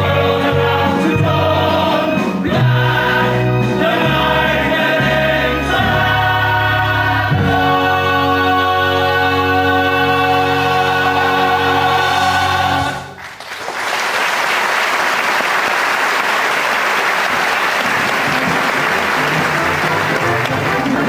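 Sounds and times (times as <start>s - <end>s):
male chorus with orchestra: 0.0s - 13.2s
audience applause: 13.1s - 21.0s.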